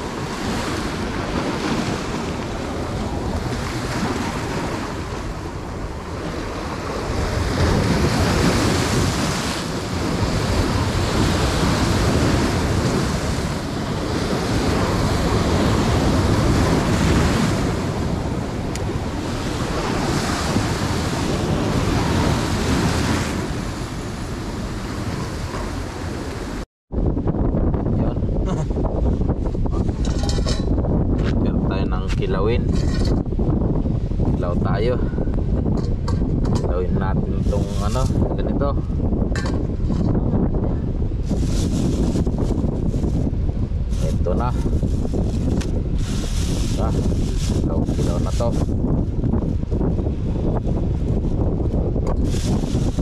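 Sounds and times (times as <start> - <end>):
waves breaking on rocks: 0.0 - 26.6, 36.6 - 38.7, 41.2 - 50.4
wind rumbling on microphone: 0.0 - 53.0.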